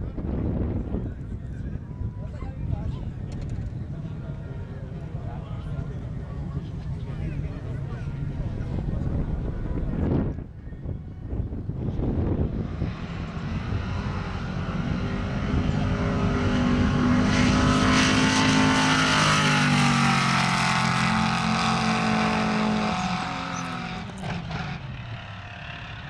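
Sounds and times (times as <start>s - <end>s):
drag car engine at full throttle: 11.3s - 26.0s.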